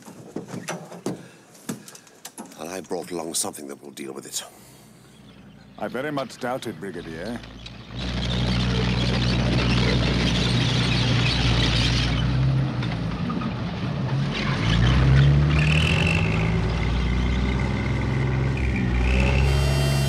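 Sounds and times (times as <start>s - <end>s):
tank engine droning: 4.8s - 20.0s.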